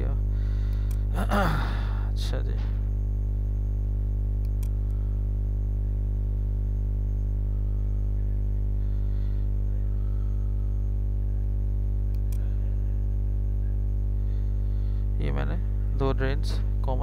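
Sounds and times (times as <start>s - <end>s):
electrical hum: 0.0s - 17.0s
short clicks: 4.4s - 5.0s.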